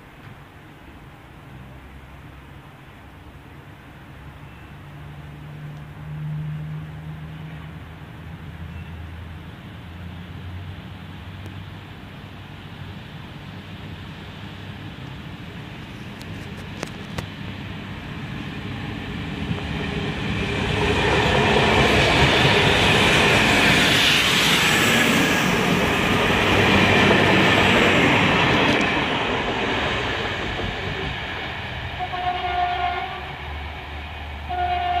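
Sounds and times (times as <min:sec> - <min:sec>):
train wheels on rails: 0:12.7 - 0:35.0
train horn: 0:32.0 - 0:33.5, 0:34.4 - 0:35.0.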